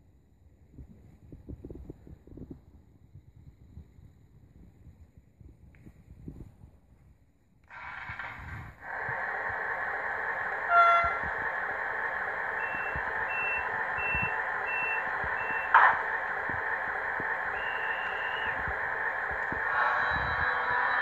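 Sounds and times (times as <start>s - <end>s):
loud burst of noise: 7.6s - 21.0s
electric train running hum: 7.7s - 21.0s
train horn toot: 10.7s - 11.3s.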